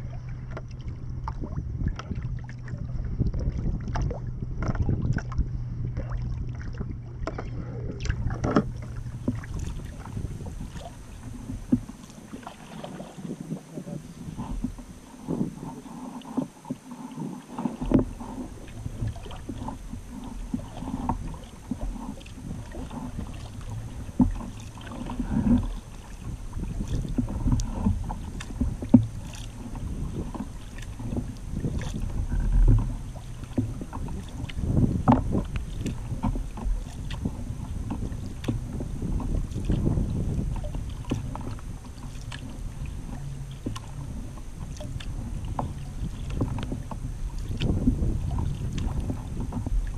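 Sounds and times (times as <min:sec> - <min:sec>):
paddle splashes: 0:00.0 - 0:49.9
water lapping along hull: 0:00.0 - 0:49.9
wind on microphone: 0:00.0 - 0:49.9.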